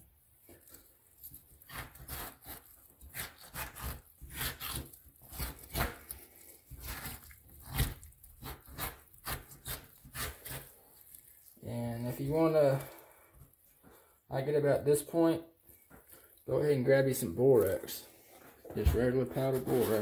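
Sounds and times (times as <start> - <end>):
wet scraping of fish skin: 0.4 - 14.2.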